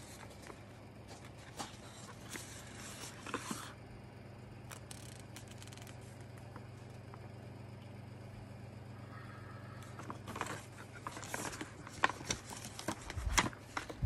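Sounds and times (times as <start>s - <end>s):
paper crinkling and crackling: 0.0s - 3.7s, 9.8s - 14.0s
faint low hum: 0.0s - 14.0s.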